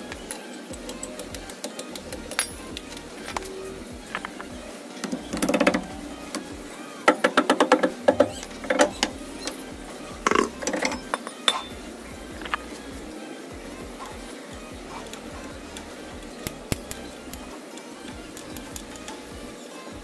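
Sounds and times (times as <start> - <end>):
metal clatter and clinks: 2.3 - 3.5, 10.3 - 11.8.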